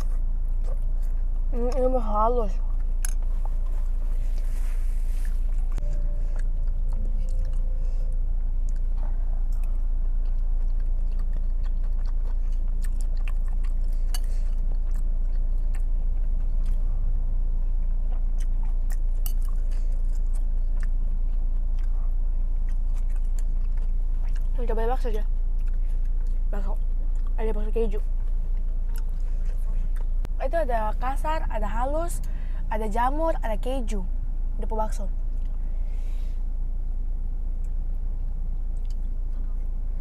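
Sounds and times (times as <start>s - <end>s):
steady low hum: 0.0s - 40.0s
chewing and biting: 5.2s - 16.9s, 17.6s - 30.3s.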